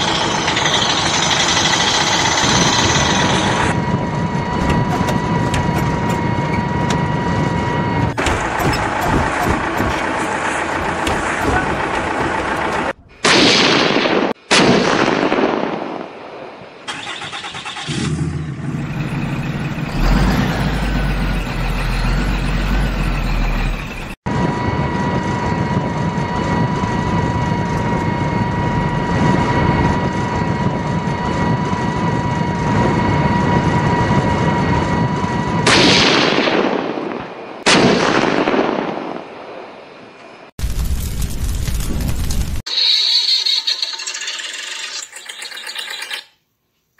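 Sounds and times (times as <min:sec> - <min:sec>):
engine starting and running: 0:00.0 - 0:03.8, 0:04.4 - 0:13.2, 0:16.9 - 0:24.2, 0:42.6 - 0:46.3
steady whine: 0:00.0 - 0:13.2, 0:21.0 - 0:35.7.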